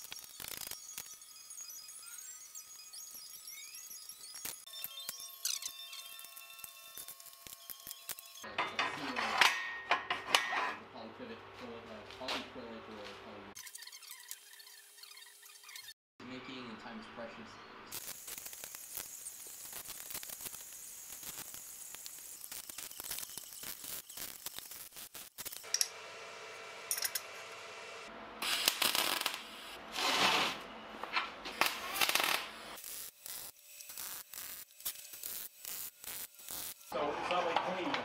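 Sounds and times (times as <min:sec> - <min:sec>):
steel parts clinking: 0:26.9 - 0:27.3.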